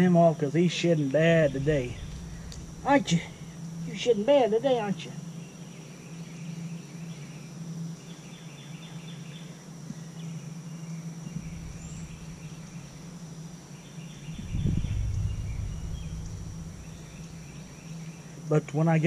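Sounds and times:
high insect drone: 0.0s - 19.0s
low hum: 1.2s - 4.3s, 11.2s - 18.4s
low rumble: 1.2s - 4.3s, 11.2s - 13.4s, 14.1s - 18.3s
bird chirping: 10.2s - 18.4s.

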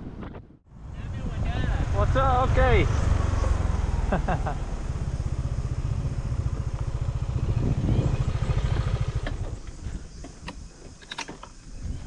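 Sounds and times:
motor scooter engine running: 1.9s - 10.3s.

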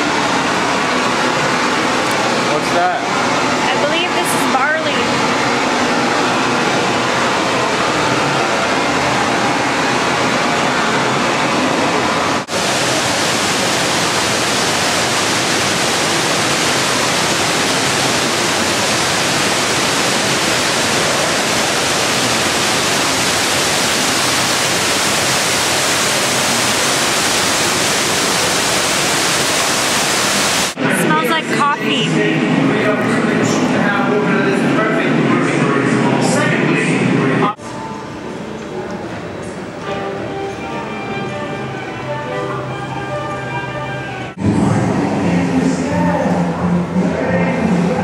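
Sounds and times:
rush of falling water: 0.0s - 31.4s.

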